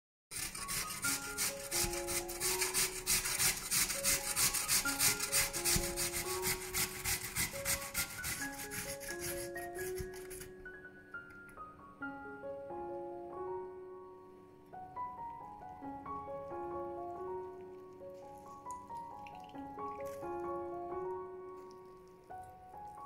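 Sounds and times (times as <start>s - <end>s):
potato rasping on metal grater: 0.3s - 10.5s
soft piano background music: 0.3s - 23.0s.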